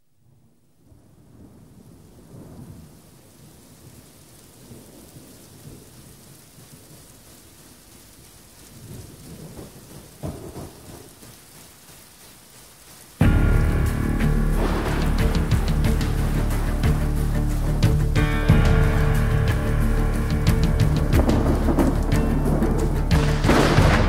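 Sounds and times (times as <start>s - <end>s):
rain hiss: 0.0s - 24.0s
low rolling thunder: 0.9s - 7.2s, 8.7s - 11.2s, 13.2s - 24.0s.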